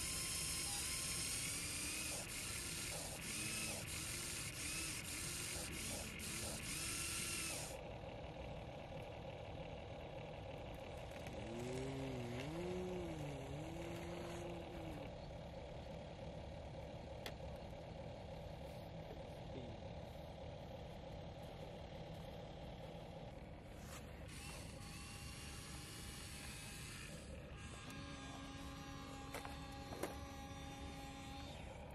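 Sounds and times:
small gear motors whirring: 0:00.0 - 0:31.9.

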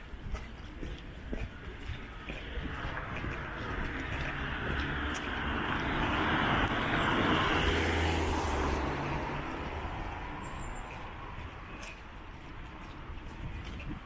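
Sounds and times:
car passing: 0:02.5 - 0:13.3.

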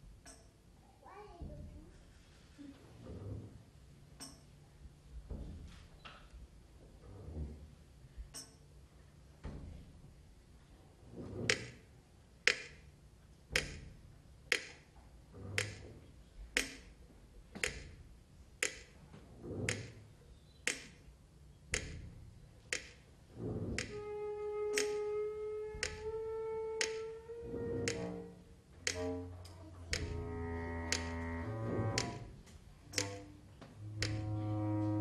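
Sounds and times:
percussion sharp clicks: 0:11.5 - 0:11.8, 0:12.4 - 0:12.9, 0:13.5 - 0:13.9, 0:14.5 - 0:14.9, 0:15.5 - 0:15.9, 0:16.5 - 0:17.0, 0:17.6 - 0:18.0, 0:18.6 - 0:19.0, 0:19.6 - 0:20.0, 0:20.6 - 0:21.1, 0:21.7 - 0:22.1, 0:22.7 - 0:23.1, 0:23.7 - 0:24.0, 0:24.7 - 0:25.1, 0:25.7 - 0:26.2, 0:26.8 - 0:28.2, 0:28.8 - 0:29.1, 0:29.9 - 0:30.2, 0:30.9 - 0:31.2, 0:31.9 - 0:32.3, 0:32.9 - 0:33.3, 0:34.0 - 0:34.2.

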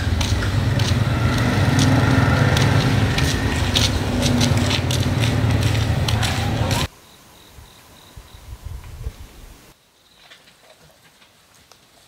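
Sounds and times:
small motorbike engine running: 0:00.0 - 0:06.9.

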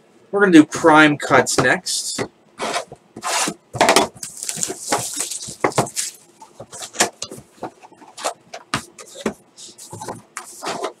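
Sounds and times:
plastic shrink wrap crackling: 0:04.2 - 0:07.0.

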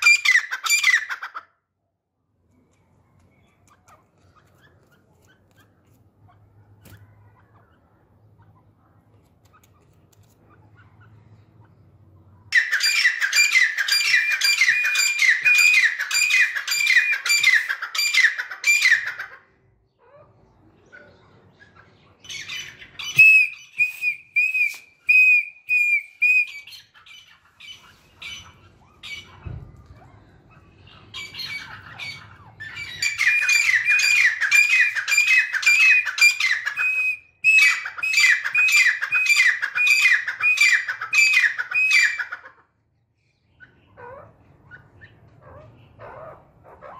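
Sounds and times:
francolins calling: 0:10.6 - 0:42.6.

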